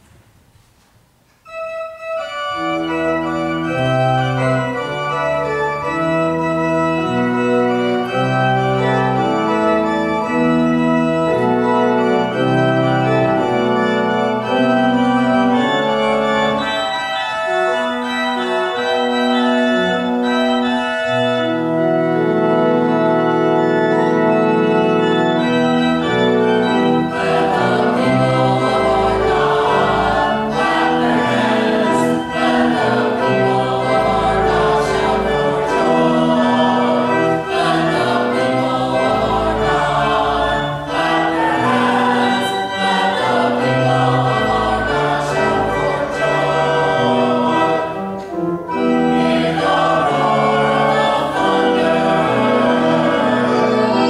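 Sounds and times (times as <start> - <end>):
pipe organ chords: 1.4 - 54.0.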